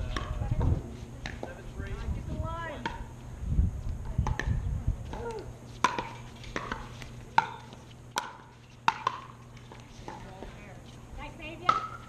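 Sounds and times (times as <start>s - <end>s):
paddles hitting plastic ball: 5.1s - 10.3s.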